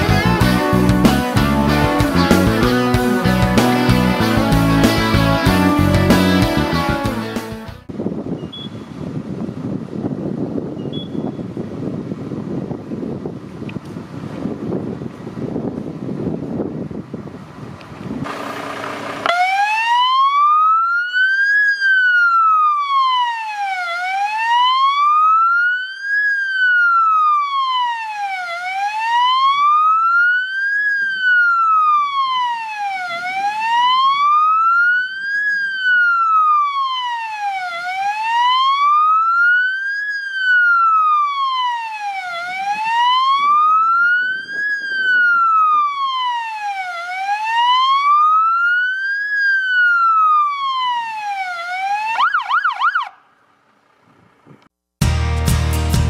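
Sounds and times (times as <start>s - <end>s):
fire engine siren wailing: 18.2s - 53.2s.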